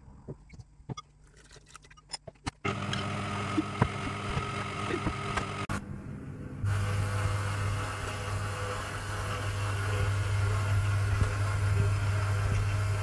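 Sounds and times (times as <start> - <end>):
stand mixer motor humming: 2.7 - 5.6, 6.7 - 13.0.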